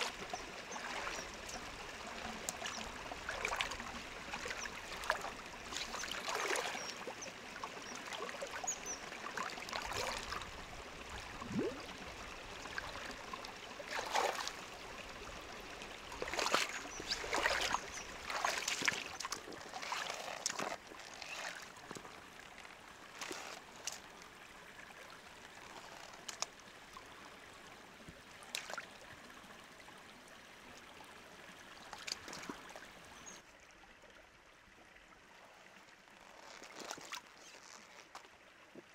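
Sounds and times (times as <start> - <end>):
water trickling and splashing: 0.0 - 38.9.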